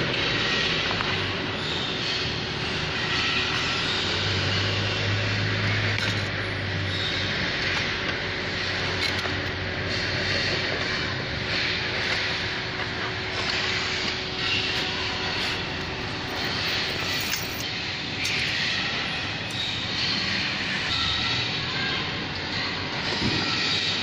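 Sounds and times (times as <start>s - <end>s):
machine humming: 0.0s - 21.0s
metal parts clicking: 5.8s - 6.4s, 7.6s - 9.6s, 12.8s - 18.6s.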